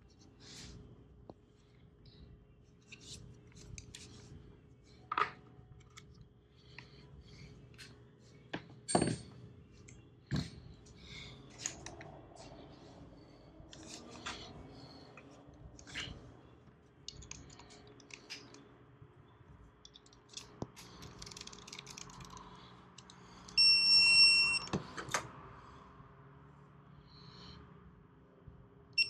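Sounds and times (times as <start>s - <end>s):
tools and engine parts clinking: 8.8s - 9.3s
torque wrench beep: 23.6s - 24.7s.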